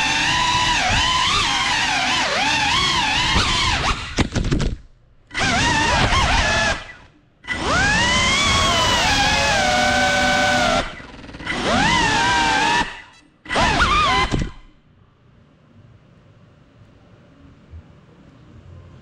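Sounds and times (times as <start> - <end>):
drone motors whining: 0.0 - 4.4, 5.3 - 14.8
knocks of drone crashing: 3.2 - 4.8, 13.5 - 14.7.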